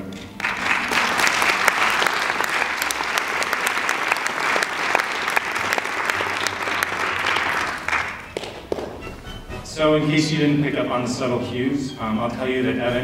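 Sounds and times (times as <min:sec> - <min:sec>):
audience applauding: 0:00.3 - 0:09.1.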